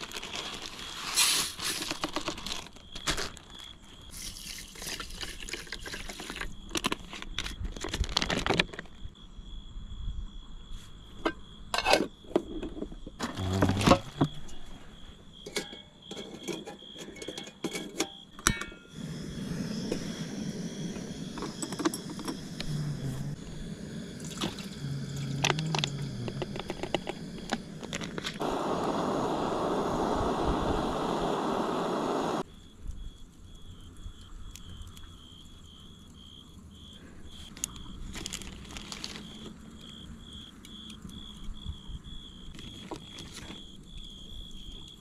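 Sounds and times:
metal mess tin and camp gear clattering: 0.0s - 8.9s, 11.2s - 14.6s, 15.4s - 18.9s
high insect trill: 0.0s - 45.0s
gas torch burner hissing: 18.9s - 32.5s.

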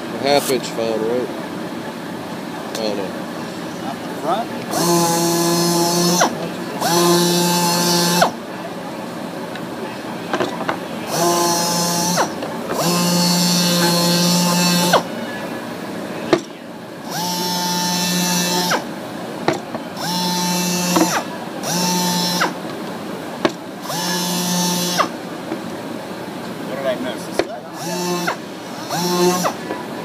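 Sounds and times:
power tool motor whirring: 4.6s - 8.4s, 10.4s - 15.1s, 16.3s - 18.9s, 19.5s - 22.6s, 23.5s - 25.2s, 27.4s - 29.7s.

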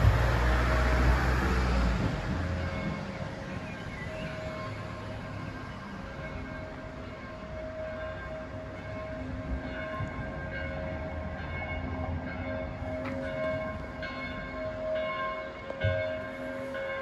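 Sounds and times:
church bells pealing: 0.0s - 17.0s.

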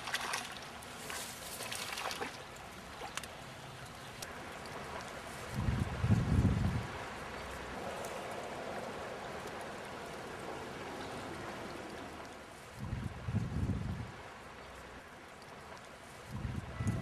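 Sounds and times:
river water flowing: 0.0s - 13.3s, 13.9s - 16.3s
low rumbles on microphone: 5.5s - 6.9s, 12.8s - 14.2s, 16.3s - 17.0s.

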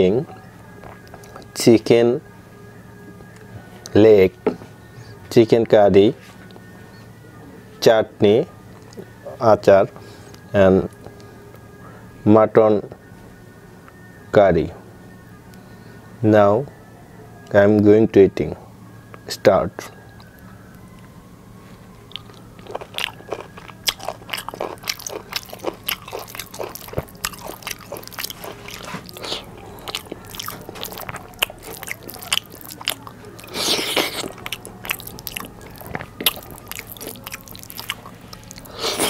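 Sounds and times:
faint low hum: 0.0s - 39.0s
wet chewing mouth clicks: 22.1s - 39.0s.

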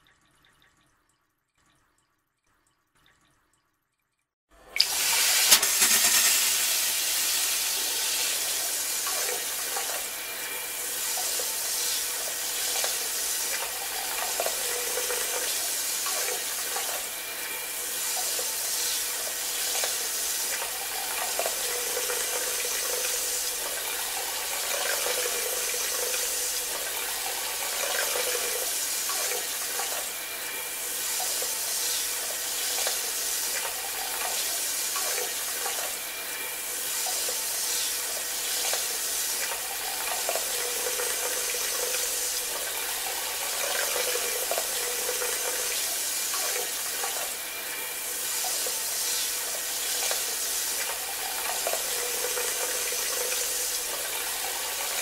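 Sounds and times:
bidet sprayer spraying water: 4.8s - 10.2s.

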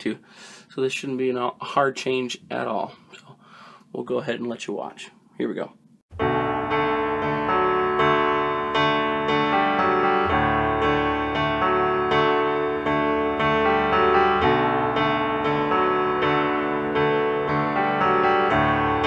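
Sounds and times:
background piano music: 6.1s - 19.0s.

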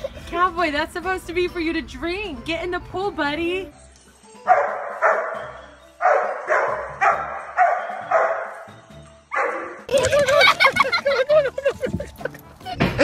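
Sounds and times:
dog barking: 4.5s - 8.7s, 9.3s - 9.8s.

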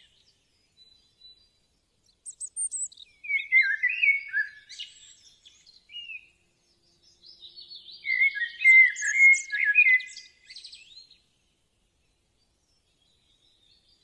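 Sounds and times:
bird whistling and chattering: 2.6s - 4.6s, 8.1s - 10.2s.

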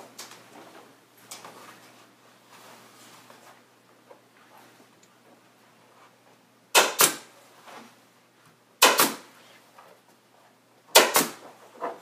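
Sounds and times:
staple gun firing: 6.8s - 7.3s, 8.8s - 9.2s, 11.0s - 11.4s.

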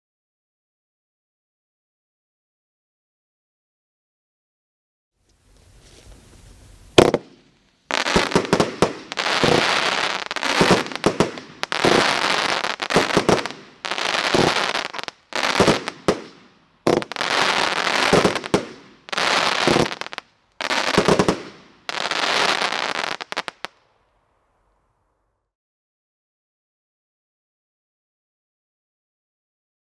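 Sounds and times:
firework report: 5.3s - 24.7s
firework crackling volleys: 5.4s - 24.3s.

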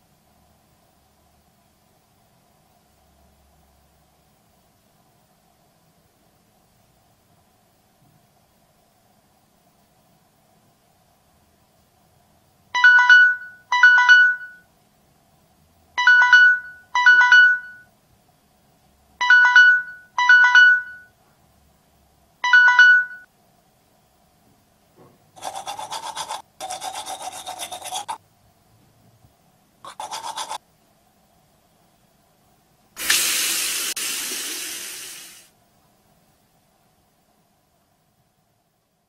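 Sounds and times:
electronic alarm beeping: 12.8s - 14.6s, 16.0s - 17.9s, 19.2s - 21.1s, 22.4s - 23.3s
toothbrush scrubbing teeth: 25.4s - 28.2s, 29.9s - 30.6s.

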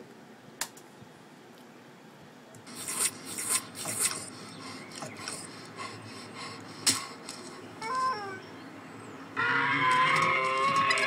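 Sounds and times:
cartoon scraping strokes: 2.7s - 7.6s.

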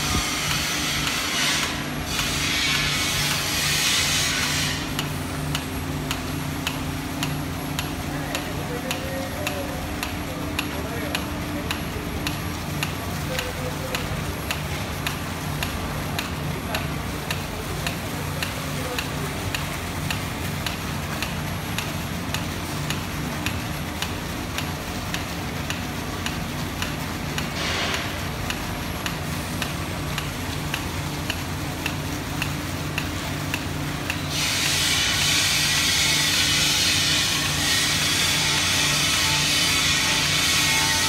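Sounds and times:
low machinery hum: 0.0s - 41.0s
faint regular ticking: 4.9s - 34.3s.

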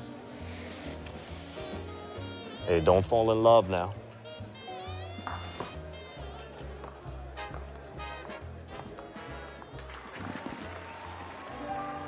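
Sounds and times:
swing jazz dance band music: 0.0s - 12.0s.

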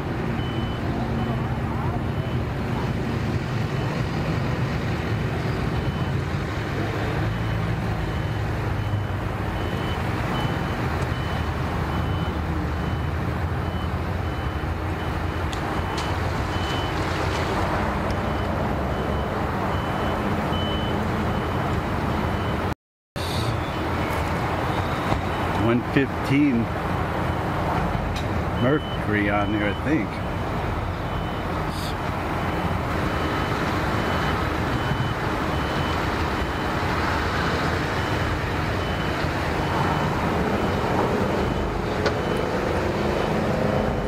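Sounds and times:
reversing beeper: 18.1s - 25.8s, 28.6s - 30.4s, 38.0s - 44.0s.

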